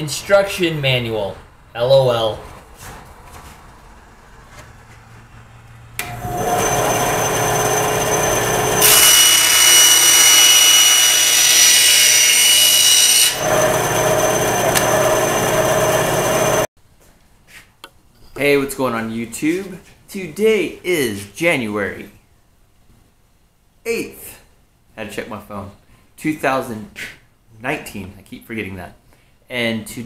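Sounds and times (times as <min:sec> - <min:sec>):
band saw cutting board: 0:06.0 - 0:16.7
band saw running: 0:06.0 - 0:16.7.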